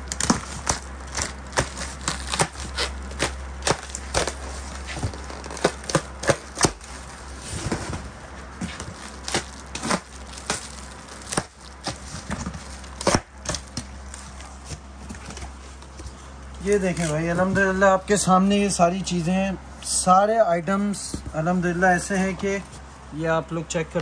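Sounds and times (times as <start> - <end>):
plastic wrap and cardboard tearing: 0.0 - 8.0, 8.8 - 14.6
steady low hum: 0.0 - 24.0.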